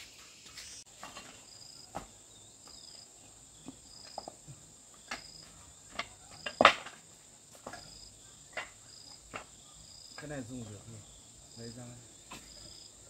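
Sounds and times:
insect chirping: 0:00.0 - 0:13.0
steady high hiss: 0:00.0 - 0:13.0
knocks and clatter of handling: 0:00.9 - 0:02.8, 0:03.6 - 0:09.6.

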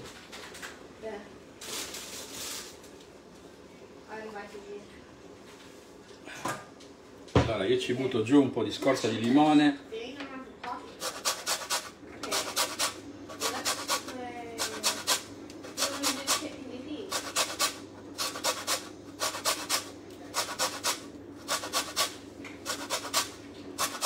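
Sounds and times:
lemon rasping on metal grater: 0:11.0 - 0:24.0.

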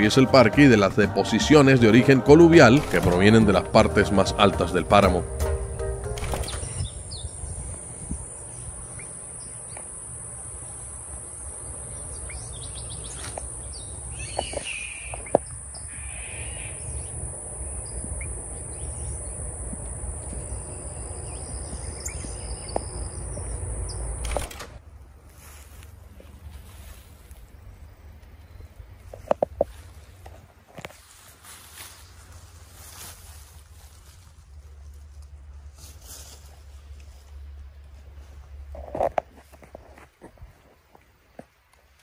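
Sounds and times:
high-pitched insect drone: 0:02.9 - 0:12.5, 0:13.1 - 0:24.2
bird chirps: 0:06.2 - 0:07.8, 0:08.4 - 0:10.0, 0:11.6 - 0:24.2
wind rumble on microphone: 0:06.4 - 0:09.0, 0:14.4 - 0:24.2.

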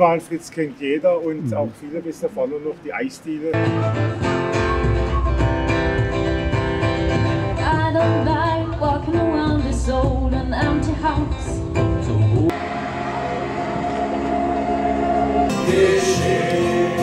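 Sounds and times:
woman singing: 0:07.6 - 0:11.6
group of men singing: 0:15.4 - 0:17.0.

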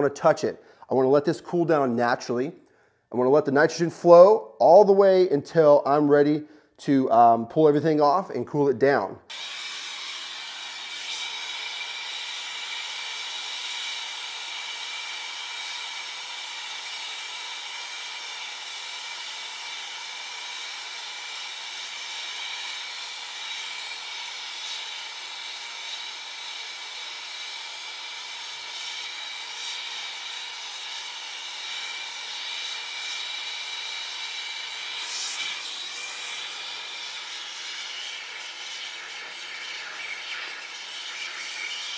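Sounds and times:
gas hissing through pipes: 0:09.3 - 0:41.9.

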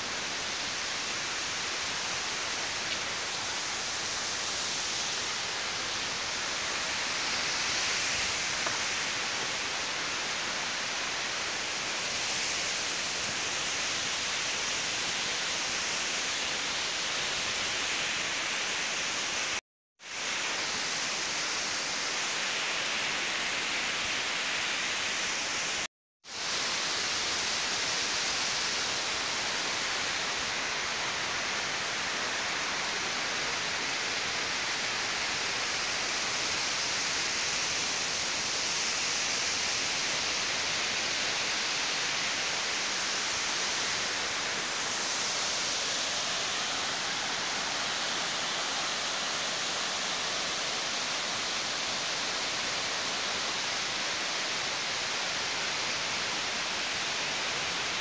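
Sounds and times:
waterfall rushing: 0:38.7 - 0:58.0.

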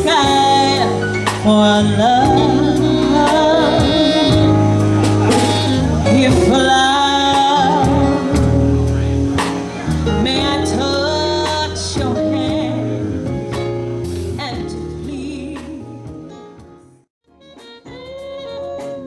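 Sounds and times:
woman singing into microphone: 0:00.0 - 0:08.8, 0:10.1 - 0:13.1, 0:14.4 - 0:16.1, 0:18.1 - 0:19.0
deep bass notes: 0:00.0 - 0:17.0
live band playing: 0:00.0 - 0:19.0.

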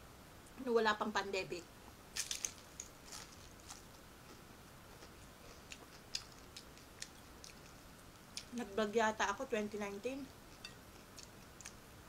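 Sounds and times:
person chewing crunchy food: 0:02.2 - 0:08.6, 0:10.3 - 0:11.9.

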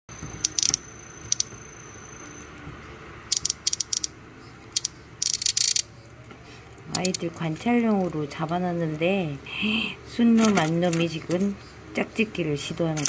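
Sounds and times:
cicadas clicking: 0:00.3 - 0:02.5, 0:03.3 - 0:04.1, 0:04.8 - 0:05.9.

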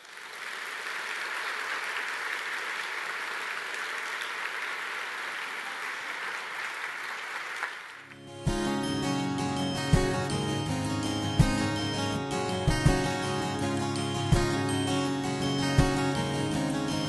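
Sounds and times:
audience applauding: 0:00.0 - 0:08.3
music: 0:08.0 - 0:17.0.

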